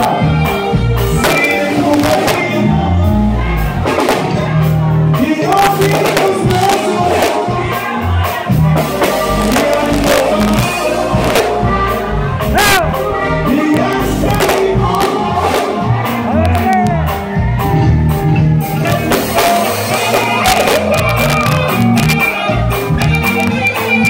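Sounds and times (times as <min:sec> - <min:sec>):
man singing into a microphone: 0:00.0 - 0:03.7, 0:04.4 - 0:11.9, 0:12.5 - 0:17.1, 0:18.8 - 0:22.2
accordion: 0:00.0 - 0:24.0
bass line: 0:00.0 - 0:24.0
drums: 0:00.0 - 0:24.0.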